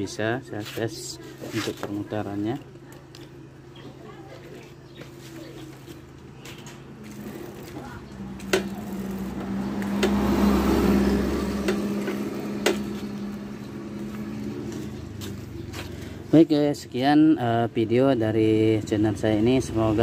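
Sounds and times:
wheel whirring hum: 0:01.3 - 0:16.4.

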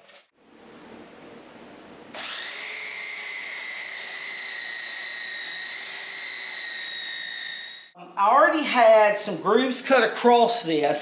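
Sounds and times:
electric motor whining: 0:02.1 - 0:07.9.

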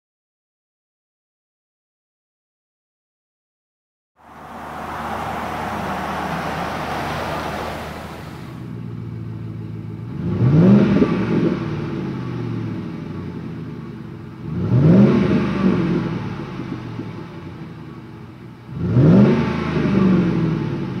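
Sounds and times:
truck engine idling and revving: 0:04.2 - 0:17.0
road and tyre noise: 0:04.2 - 0:21.0.

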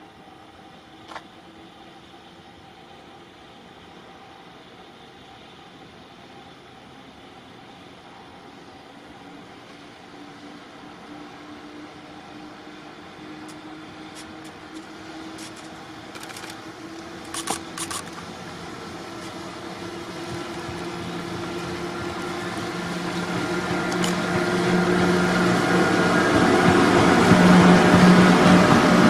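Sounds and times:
freight train passing: 0:00.0 - 0:29.0
sharp clicks: 0:17.2 - 0:18.2.

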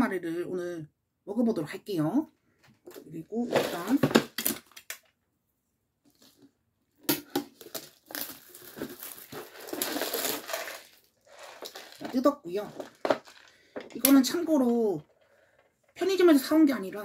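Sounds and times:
plastic wrap crinkling: 0:07.2 - 0:14.0.

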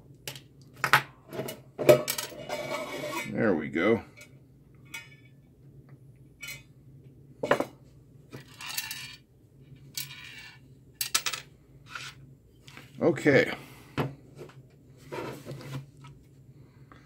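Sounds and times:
metallic clinks and scrapes: 0:08.4 - 0:09.2, 0:09.9 - 0:12.2.

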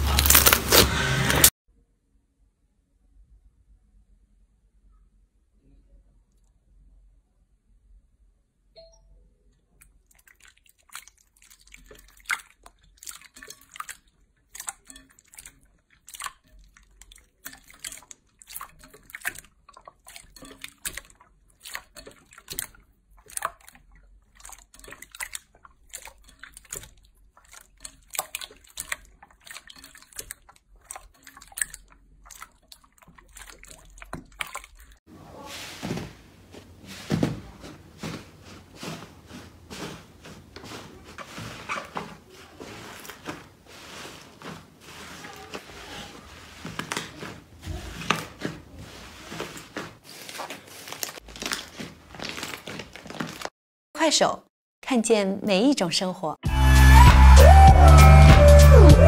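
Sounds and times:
slime squelching: 0:00.0 - 0:01.5, 0:09.7 - 0:53.5
squishy toy crushing: 0:00.0 - 0:01.5.

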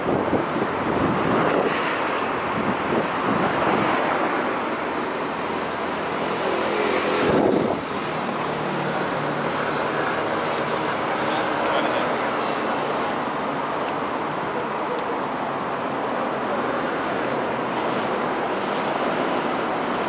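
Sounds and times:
passing cars: 0:00.0 - 0:20.0.

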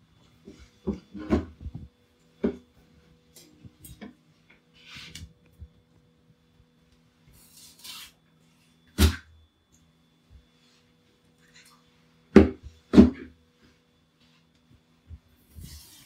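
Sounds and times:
knife scraping fish: 0:15.5 - 0:16.0.

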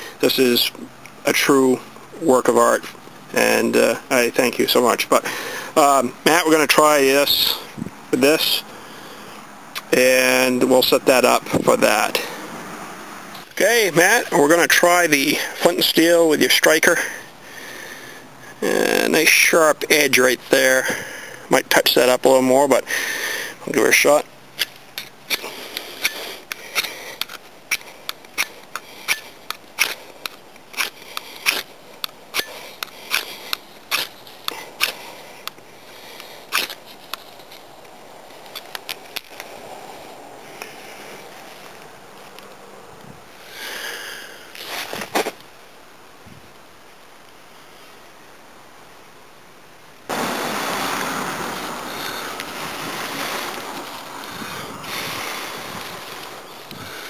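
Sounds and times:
steel striker scraping flint: 0:24.6 - 0:39.6
breath blowing into tinder: 0:50.1 - 0:57.0.

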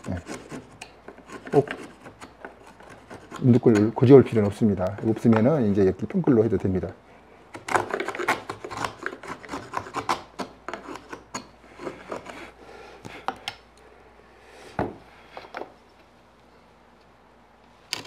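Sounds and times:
chisel scraping wood: 0:00.0 - 0:05.4, 0:07.5 - 0:12.6.

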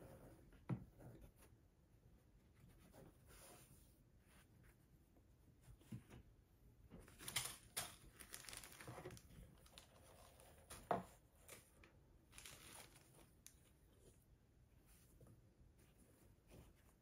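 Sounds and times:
plastic packaging crinkling: 0:07.1 - 0:10.4, 0:12.3 - 0:13.6.

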